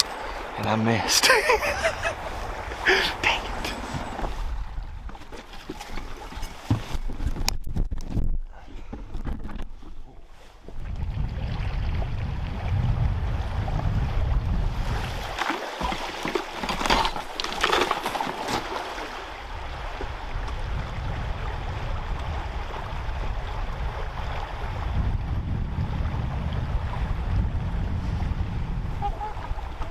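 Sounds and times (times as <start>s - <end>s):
river water sloshing around boat: 0.0s - 7.3s, 14.7s - 20.9s, 29.0s - 29.9s
wind rumbling on microphone: 1.4s - 17.9s, 18.5s - 29.9s
water splashing: 14.7s - 24.8s.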